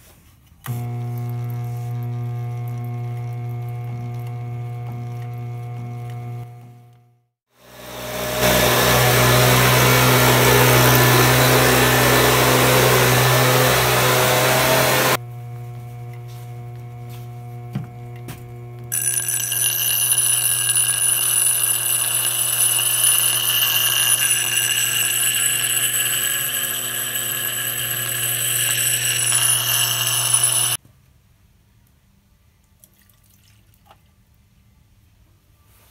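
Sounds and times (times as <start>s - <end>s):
electric leaf blower humming: 0.7s - 7.0s, 7.6s - 30.8s
grinding wheel motor hum: 0.7s - 30.8s
steel tool grinding on stone: 18.9s - 30.8s.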